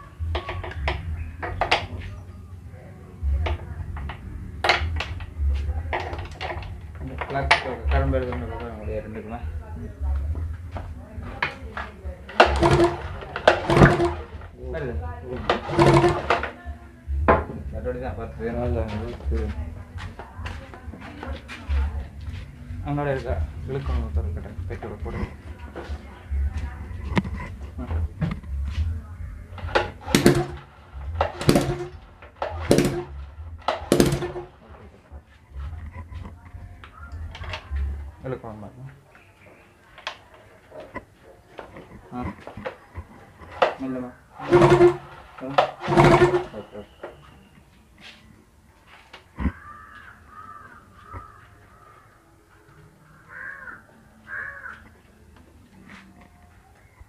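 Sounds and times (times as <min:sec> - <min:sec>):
heavy knocks: 0:12.4 - 0:14.5, 0:15.5 - 0:16.4, 0:29.6 - 0:34.6, 0:44.4 - 0:46.7
low steady rumble: 0:21.7 - 0:34.8
bird calling: 0:49.5 - 0:52.1, 0:53.1 - 0:54.8.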